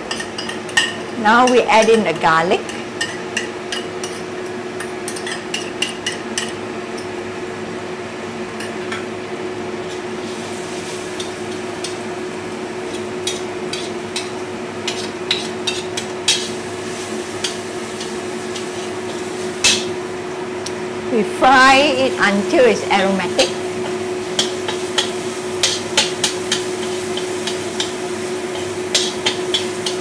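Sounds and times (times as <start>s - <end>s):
garlic sizzling in a wok: 0.0s - 30.0s
metal spatula scraping a wok: 12.8s - 19.9s, 24.4s - 30.0s.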